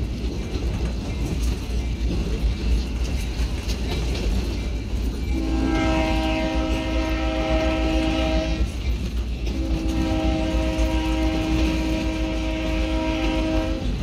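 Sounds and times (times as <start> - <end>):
train rumbling on rails: 0.0 - 14.0
train air horn blast: 5.3 - 8.8, 9.5 - 14.0.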